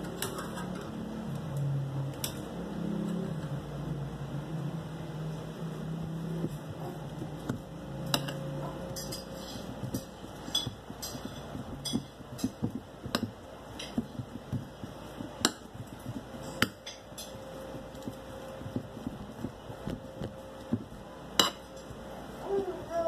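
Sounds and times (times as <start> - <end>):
low hum: 0.0 - 23.0
utensil knocking against a bowl: 9.0 - 17.3.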